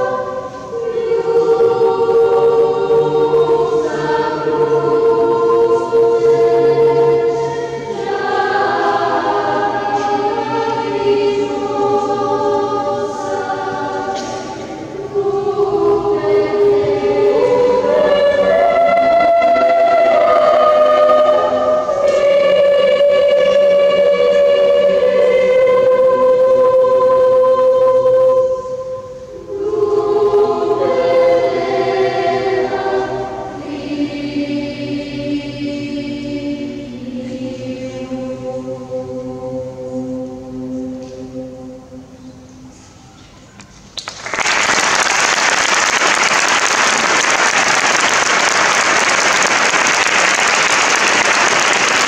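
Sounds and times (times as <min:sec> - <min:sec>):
choir singing sustained notes: 0:00.0 - 0:43.2
audience applauding: 0:44.0 - 0:52.0.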